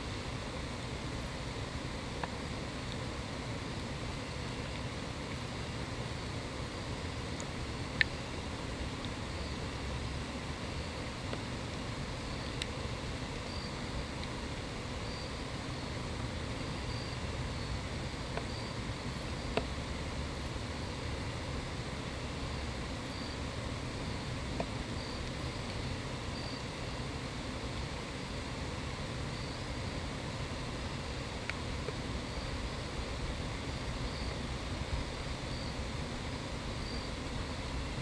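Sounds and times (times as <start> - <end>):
outdoor rumble and hiss: 0.0 - 38.0
high insect chirps: 13.4 - 14.1, 14.9 - 19.8, 22.6 - 23.5, 24.1 - 25.6, 26.3 - 27.0, 29.2 - 29.8, 35.4 - 35.8, 36.8 - 37.2.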